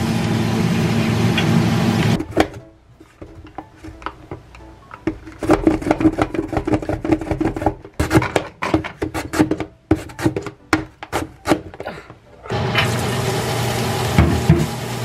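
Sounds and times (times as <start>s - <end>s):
carrot rasping on slicer blade: 9.0s - 10.5s.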